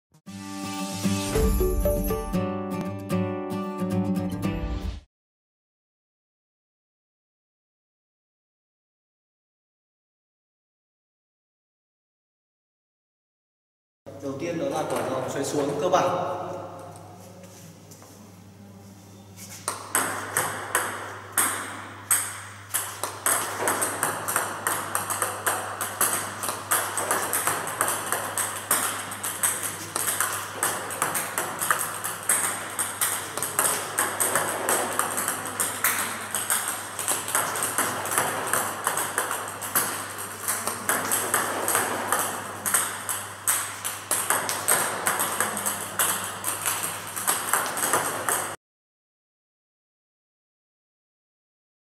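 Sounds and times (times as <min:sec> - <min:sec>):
ball bouncing on table: 0:19.6 - 0:48.6
table tennis ball clicking off bat: 0:19.7 - 0:48.5.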